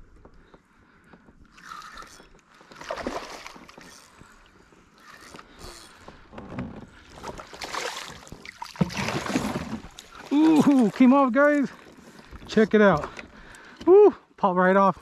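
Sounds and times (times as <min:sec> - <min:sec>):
fish splashing in water: 0:02.7 - 0:03.9, 0:07.2 - 0:11.1.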